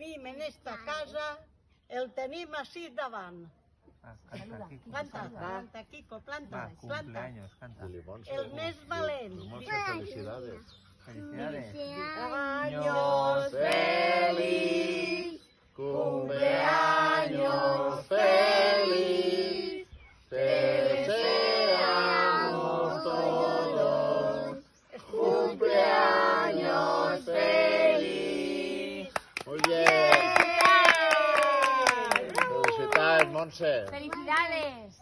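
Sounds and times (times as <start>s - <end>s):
group of people singing: 11.4s - 29.4s.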